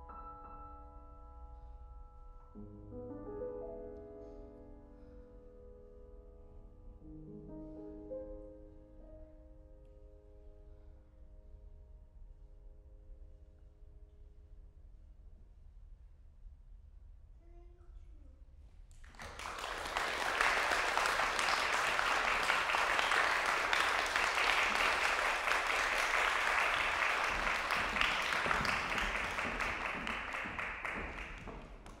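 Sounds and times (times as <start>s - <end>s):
audience applauding: 18.9s - 32.0s.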